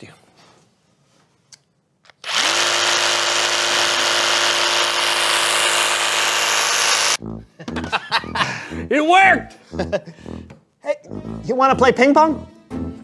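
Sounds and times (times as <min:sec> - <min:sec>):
power tool whining: 0:02.2 - 0:07.2.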